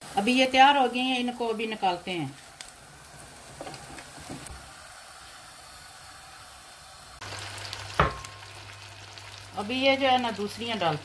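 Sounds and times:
oil sizzling in a pan: 0:00.0 - 0:11.0.

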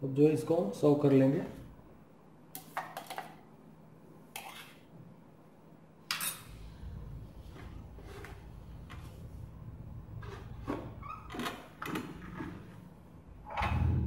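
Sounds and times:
faint low rumble: 0:06.6 - 0:11.1, 0:12.7 - 0:14.0.

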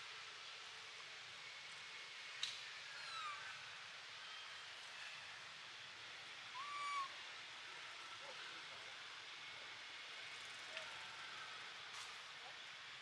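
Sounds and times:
baby macaque coo call: 0:03.0 - 0:03.5, 0:06.6 - 0:07.2.

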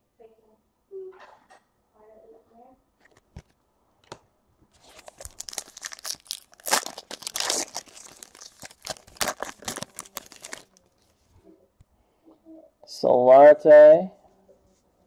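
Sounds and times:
plastic wrapper crackling and tearing: 0:04.7 - 0:10.9.

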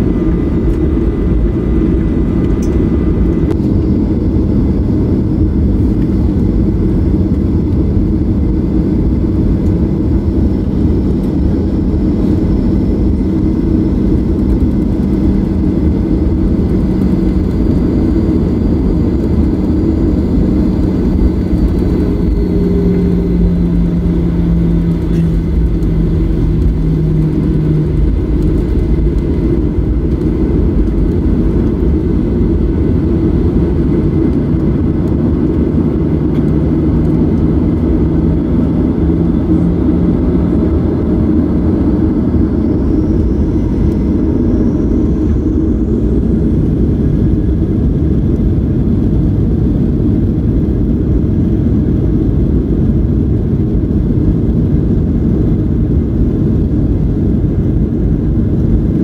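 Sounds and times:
airplane cabin engine rumble: 0:00.0 - 0:59.0
low hum: 0:00.0 - 0:59.0
faint high whine: 0:01.8 - 0:47.7.

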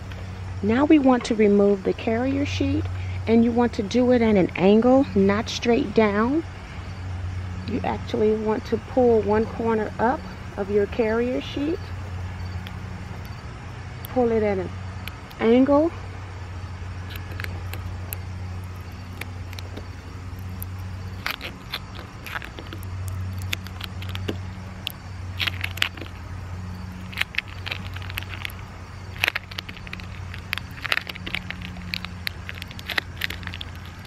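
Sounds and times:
steady low hum: 0:00.0 - 0:34.0
plastic sheet peeling crackles: 0:17.1 - 0:34.0.

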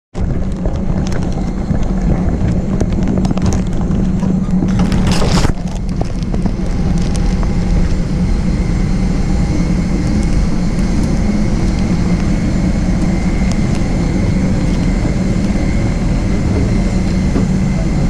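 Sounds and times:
boat engines droning: 0:00.2 - 0:18.0
faint high whine: 0:04.0 - 0:18.0.

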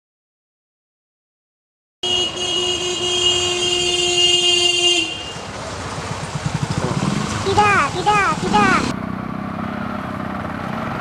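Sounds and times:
vehicle horn held note: 0:02.0 - 0:05.4
street traffic: 0:02.0 - 0:11.0.

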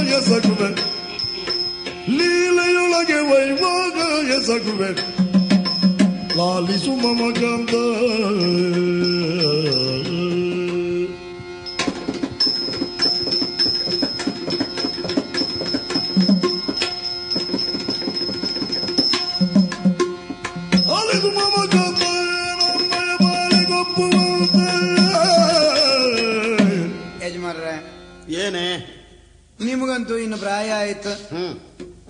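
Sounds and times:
drum strokes: 0:00.0 - 0:27.1
person singing: 0:06.3 - 0:11.4, 0:20.9 - 0:27.0.

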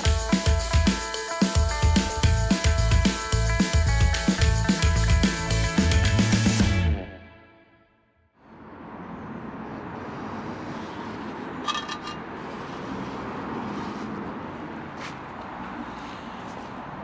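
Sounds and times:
distant traffic: 0:08.4 - 0:17.0
shovel scraping on paving: 0:10.6 - 0:14.4.

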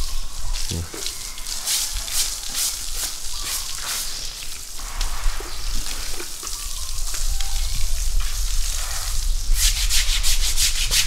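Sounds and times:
scrubbing on elephant hide: 0:00.6 - 0:07.3, 0:08.2 - 0:11.0.

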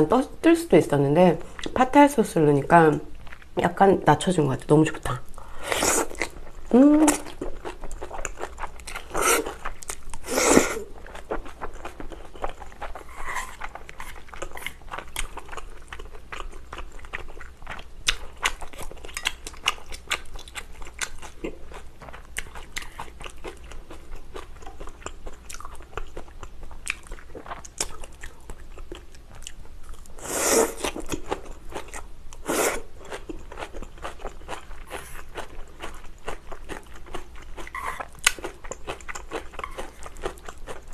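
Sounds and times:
wet chewing and crunching: 0:06.0 - 0:30.1, 0:33.0 - 0:40.9
noodle slurp: 0:09.0 - 0:09.6, 0:10.2 - 0:10.9.

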